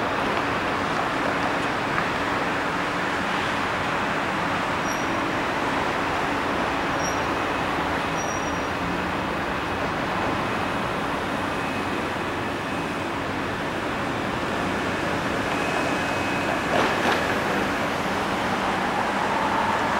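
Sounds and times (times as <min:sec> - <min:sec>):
jet engines roaring at takeoff: 0:11.0 - 0:19.9.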